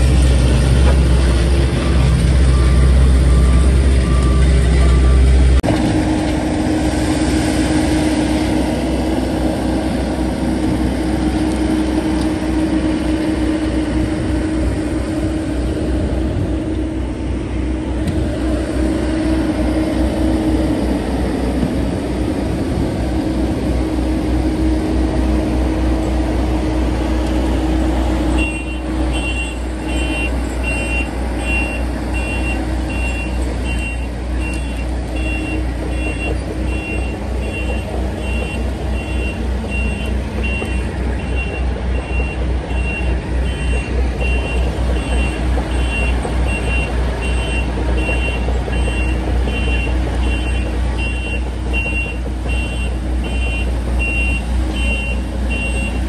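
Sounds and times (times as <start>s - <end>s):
heavy diesel engines running: 0.0s - 56.0s
backup alarm beeping: 28.4s - 56.0s.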